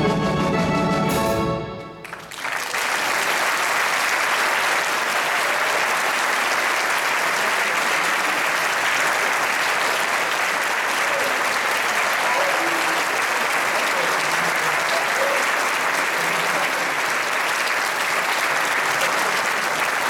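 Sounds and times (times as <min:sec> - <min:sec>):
orchestra final chord: 0:00.0 - 0:02.1
audience applause: 0:01.9 - 0:20.0.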